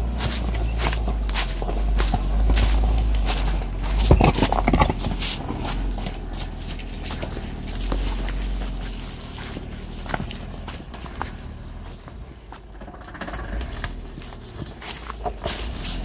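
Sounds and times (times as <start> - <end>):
footsteps: 0.0 - 12.9, 13.6 - 16.0
steady low rumble: 0.0 - 16.0
tires crunching over leaves and rocks: 0.0 - 16.0.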